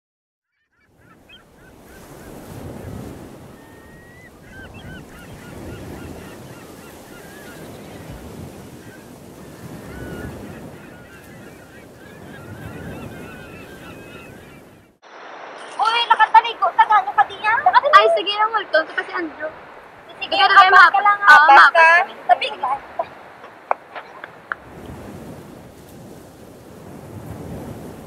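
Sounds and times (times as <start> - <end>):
birds chirping: 0.5 - 26.2
surf washing on a beach: 0.9 - 28.0.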